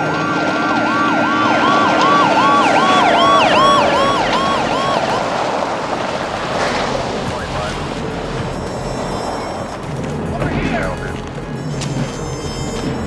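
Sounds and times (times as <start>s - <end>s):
police siren yelping: 0.0s - 6.1s.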